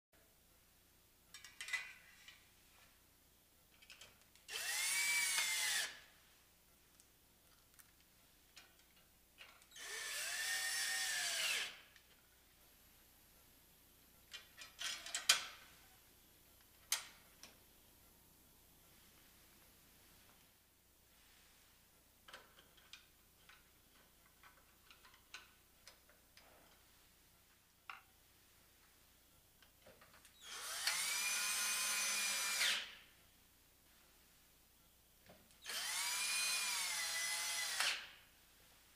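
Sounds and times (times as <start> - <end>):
cordless drill whining: 4.5 - 6.0, 9.7 - 11.8, 30.4 - 33.0, 35.6 - 38.1.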